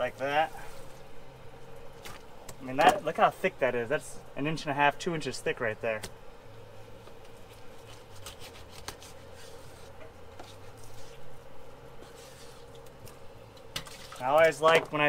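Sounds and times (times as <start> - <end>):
faint steady hum: 0.0 - 15.0
knife slicing fish fillet: 7.8 - 11.2.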